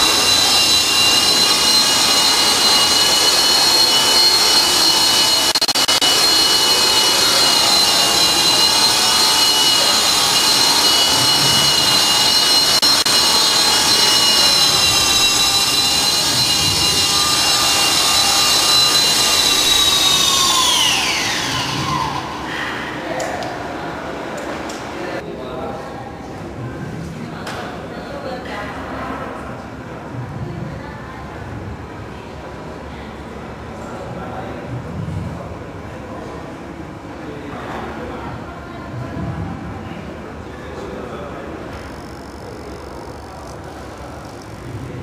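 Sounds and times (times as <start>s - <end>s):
rc helicopter rotor whine: 0.0s - 22.7s, 41.6s - 45.0s.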